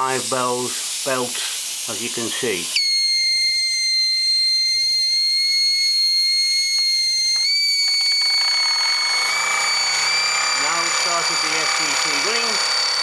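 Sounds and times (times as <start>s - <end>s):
steam whistle blowing: 2.8s - 13.0s.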